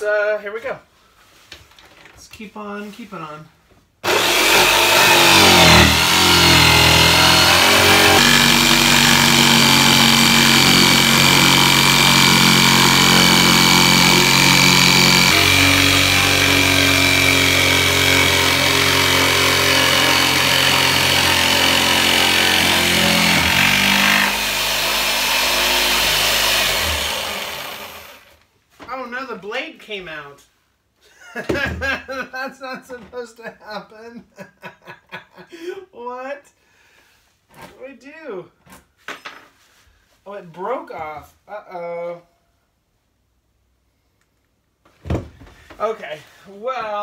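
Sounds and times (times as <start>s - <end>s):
jigsaw cutting wood panel: 4.0s - 28.4s.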